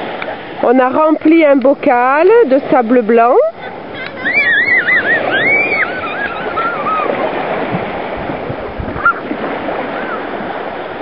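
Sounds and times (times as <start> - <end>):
small waves on sandy beach: 0.0 - 11.0
high wavering whistle-like calls: 4.2 - 7.2, 9.0 - 9.3.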